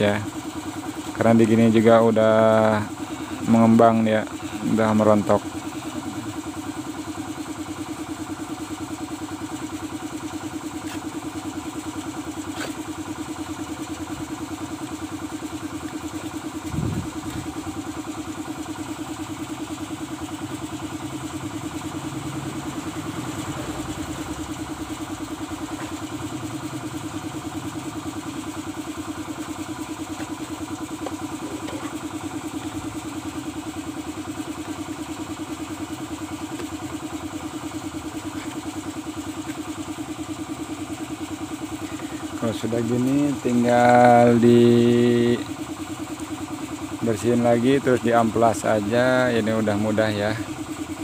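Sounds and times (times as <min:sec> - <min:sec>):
small engine idling: 0:00.0 - 0:51.0.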